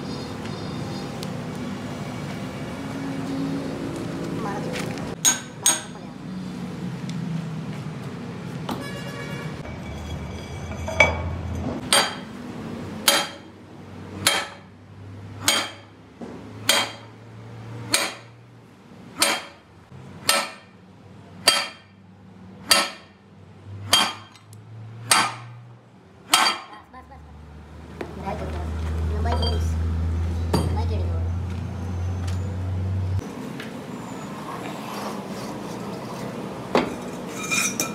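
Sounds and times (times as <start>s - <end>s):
hammer striking steel pipe: 5.2s - 6.0s, 10.7s - 12.3s, 13.0s - 13.5s, 14.2s - 14.7s, 15.4s - 15.9s, 16.6s - 17.1s, 17.9s - 18.3s, 19.2s - 19.6s, 20.2s - 20.8s, 21.4s - 22.0s, 22.6s - 23.2s, 23.9s - 24.4s, 25.0s - 25.6s, 26.3s - 26.8s.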